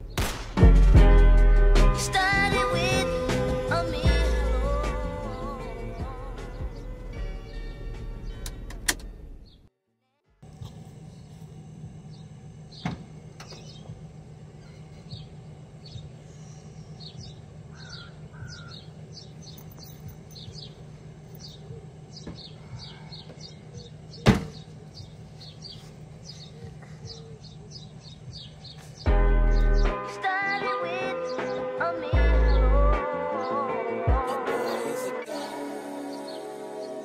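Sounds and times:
steady low hum: 0:00.0 - 0:09.4, 0:10.4 - 0:30.0
small birds chirping: 0:12.0 - 0:31.8, 0:34.5 - 0:37.0
car hatch slamming shut: 0:24.2 - 0:24.6.

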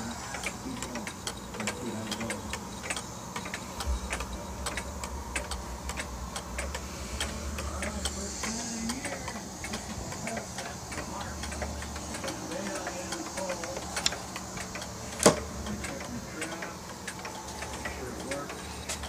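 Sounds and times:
clock ticking: 0:00.0 - 0:19.0
low rumble: 0:03.7 - 0:08.4.

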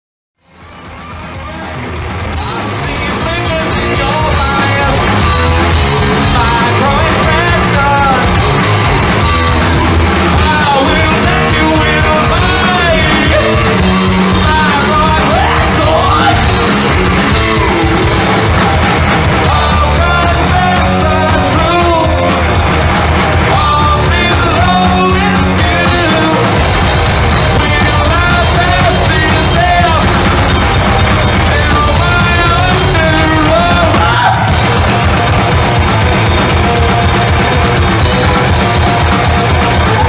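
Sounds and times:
bass guitar: 0:00.4 - 0:40.0
distorted electric guitar: 0:00.4 - 0:40.0
drums: 0:00.4 - 0:40.0
shouted vocals: 0:31.4 - 0:35.4.

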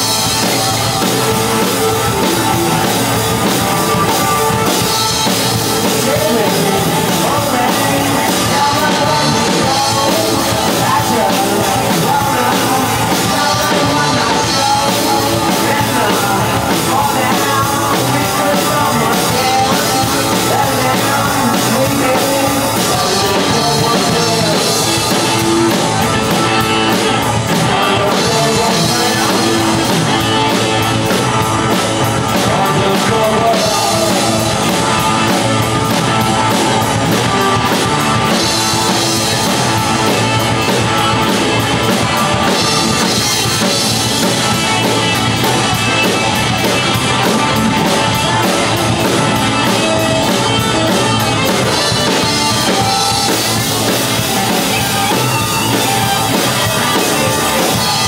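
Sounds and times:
bass guitar: 0:00.0 - 0:58.0
drum kit: 0:00.0 - 0:58.0
electric guitars: 0:00.0 - 0:58.0
person singing: 0:00.0 - 0:58.0.

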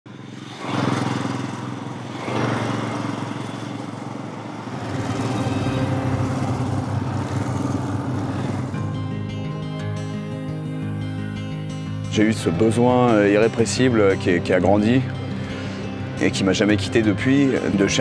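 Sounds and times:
motorcycle riding past: 0:00.1 - 0:12.0.

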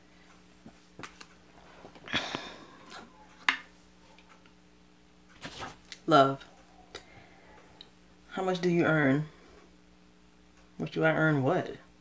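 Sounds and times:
rustling: 0:05.3 - 0:06.0.

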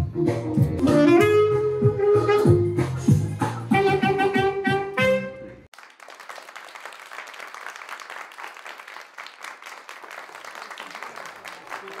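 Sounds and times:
saxophone melody: 0:00.8 - 0:05.7
people clapping: 0:05.7 - 0:12.0.

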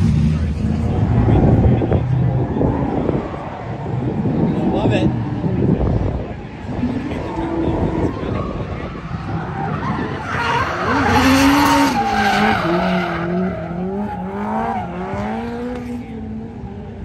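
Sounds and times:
car engine revving high: 0:06.6 - 0:17.0.

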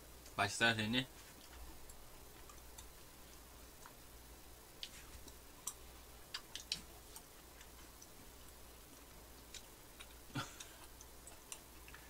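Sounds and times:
wet mouth clicks while chewing: 0:04.8 - 0:12.0.

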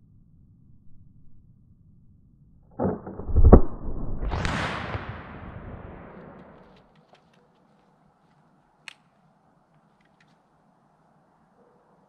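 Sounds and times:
rifle shot: 0:02.8 - 0:06.8.

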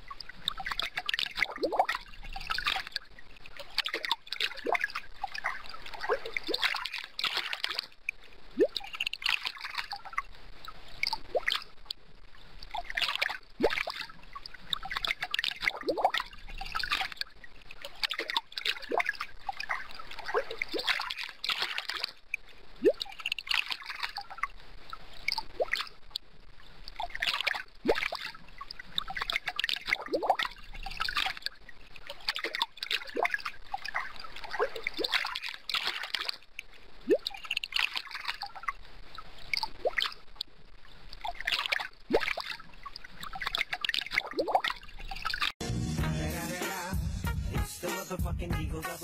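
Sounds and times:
aquarium water trickling and splashing: 0:00.0 - 0:45.6
bubbling plinks and drips: 0:00.0 - 0:45.6
music: 0:45.6 - 0:49.0.

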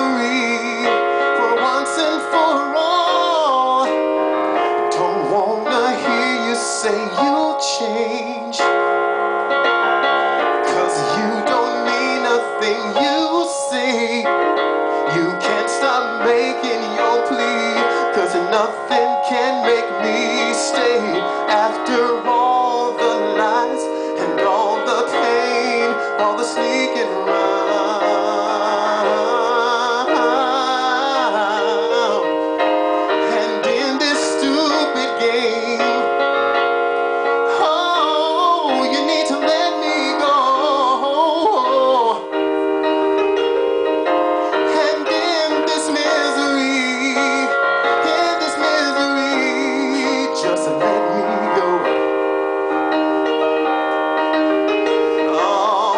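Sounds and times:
electronic keyboard piano chords: 0:00.0 - 0:55.9
man singing with vibrato: 0:00.0 - 0:55.9.

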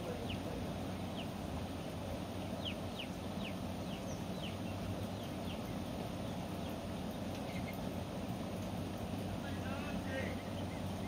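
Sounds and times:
bird calling: 0:00.0 - 0:08.2, 0:09.0 - 0:11.0
low background rush: 0:00.0 - 0:11.0.

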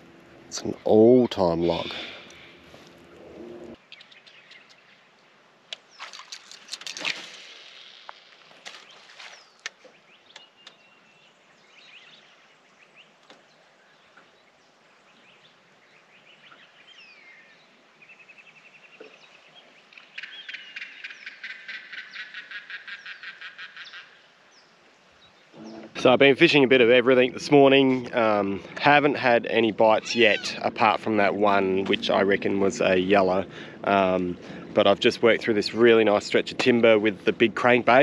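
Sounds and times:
birds chirping and whistling: 0:15.1 - 0:24.7, 0:30.0 - 0:30.8.

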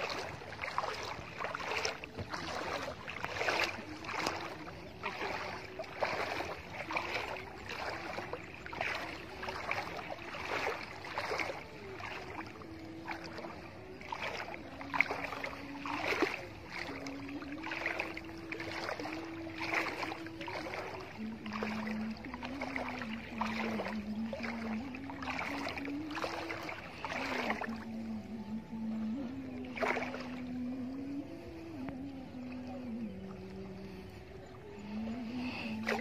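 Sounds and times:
water sloshing from wading: 0:00.0 - 0:36.0.

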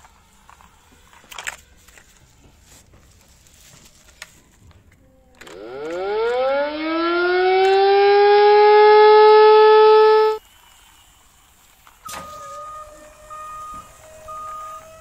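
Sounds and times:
wind-up siren wailing: 0:05.4 - 0:10.4, 0:12.1 - 0:15.0.

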